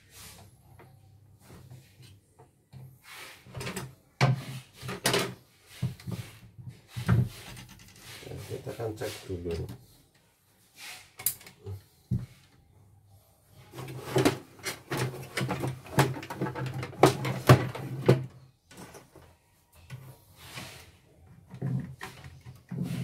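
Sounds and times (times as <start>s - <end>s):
hard plastic parts clattering: 13.8s - 19.3s.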